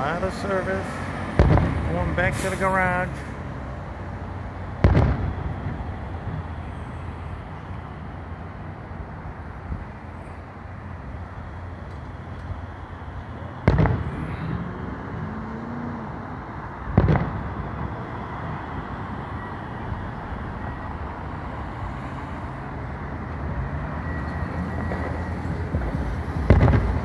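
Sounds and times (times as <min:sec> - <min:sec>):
city traffic noise: 0:00.0 - 0:27.0
distant firework booms: 0:01.4 - 0:02.3, 0:04.8 - 0:06.0, 0:13.6 - 0:14.5, 0:16.9 - 0:18.0, 0:25.7 - 0:27.0.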